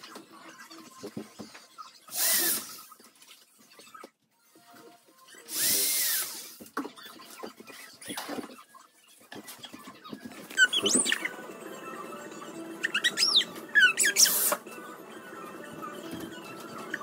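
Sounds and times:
power drill whine: 0:02.1 - 0:02.8, 0:05.5 - 0:06.6.

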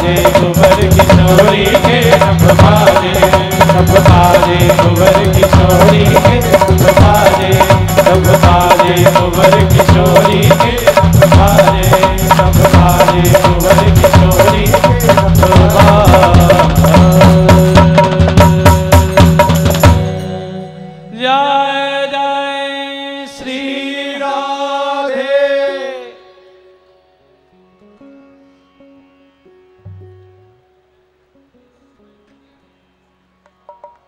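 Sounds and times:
fast hand drum rhythm: 0:00.0 - 0:20.1
accompanying melody: 0:00.0 - 0:34.0
solo instrument gliding notes: 0:20.0 - 0:22.7, 0:25.5 - 0:34.0.

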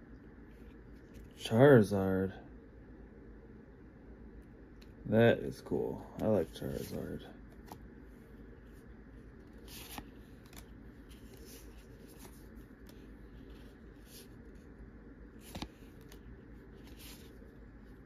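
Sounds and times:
cards flicking and rustling: 0:06.1 - 0:14.7, 0:15.3 - 0:18.0.

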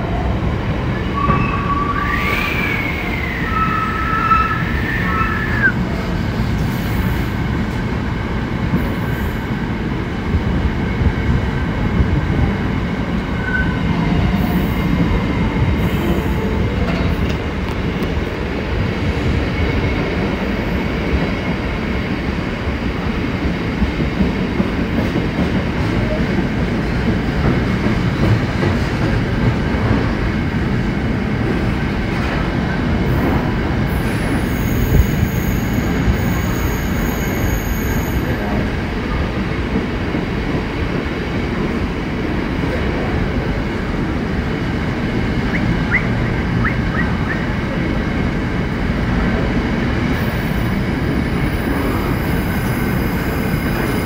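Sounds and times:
freight train rumble: 0:00.0 - 0:54.0
high wheel squeal: 0:34.1 - 0:38.3.

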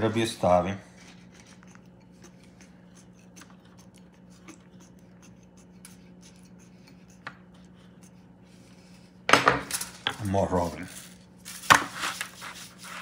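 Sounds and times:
steady low hum: 0:00.0 - 0:13.0
hands scratching raw poultry skin: 0:00.9 - 0:09.2.

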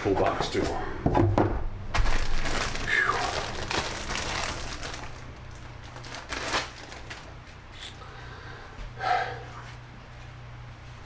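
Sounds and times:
packaging crinkling and rustling: 0:01.9 - 0:08.0.

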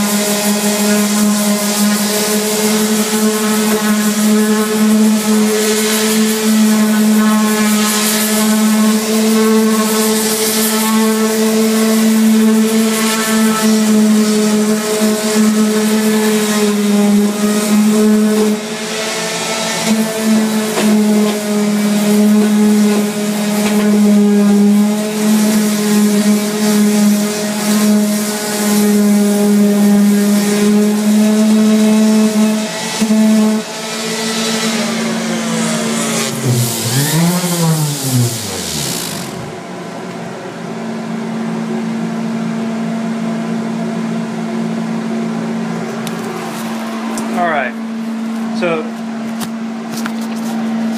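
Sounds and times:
abrasive sanding hiss: 0:00.0 - 0:39.6
electric sander motor hum: 0:00.0 - 0:39.8.

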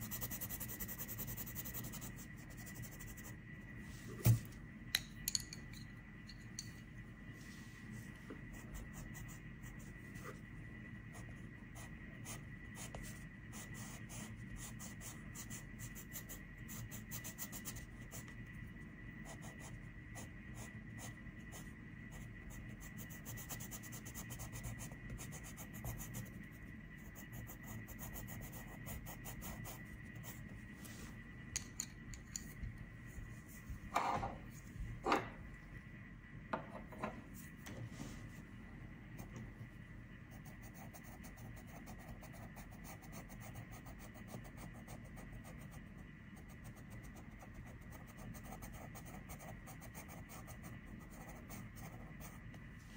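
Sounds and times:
pencil scratching on paper: 0:00.0 - 0:03.4, 0:11.1 - 0:18.4, 0:19.2 - 0:30.5, 0:40.3 - 0:52.4.

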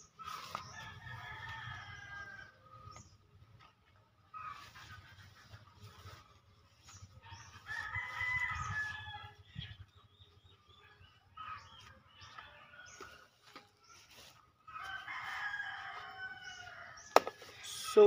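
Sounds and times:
roosters crowing: 0:00.0 - 0:03.2, 0:07.1 - 0:09.8, 0:11.0 - 0:17.6.

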